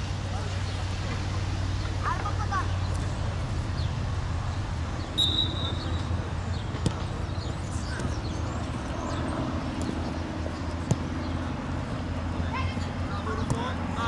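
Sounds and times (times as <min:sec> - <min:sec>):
referee whistle blast: 0:05.2 - 0:05.8
ball being kicked: 0:10.8 - 0:11.3.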